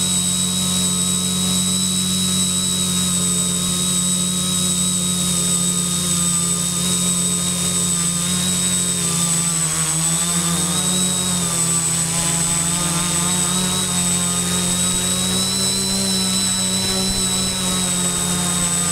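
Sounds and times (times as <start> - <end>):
drone propellers droning: 0.0 - 18.9
high-pitched electronic whine: 0.0 - 18.9.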